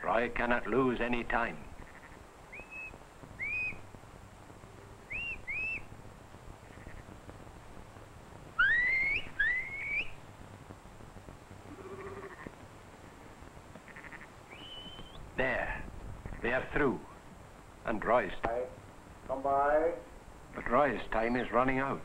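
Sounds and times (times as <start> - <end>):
faint sheep bleat: 1.8 - 2.2, 6.6 - 7.1, 11.6 - 12.6, 13.8 - 14.3
person whistling rising signals: 2.6 - 3.8, 8.6 - 10.2, 14.5 - 15.2.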